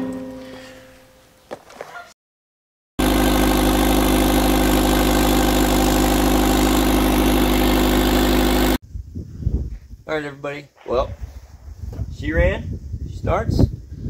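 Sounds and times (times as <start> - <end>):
car engine idling: 3.0 - 8.8.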